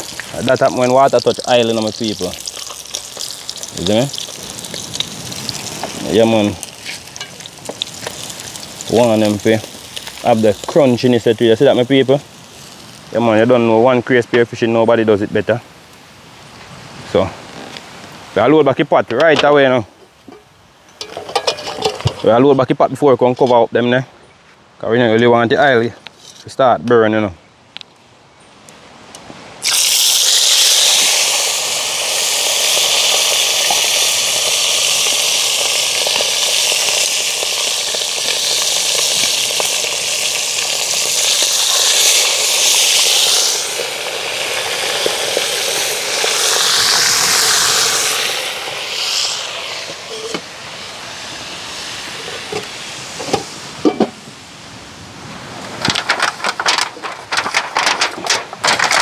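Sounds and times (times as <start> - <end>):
food sizzling in frying oil: 0.0 - 13.4, 29.6 - 53.8.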